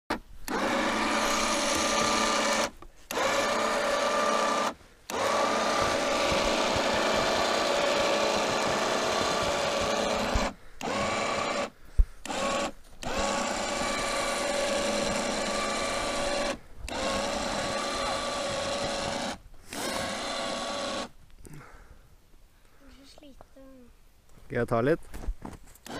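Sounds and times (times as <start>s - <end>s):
electric winch motor whining: 0.5s - 21.1s.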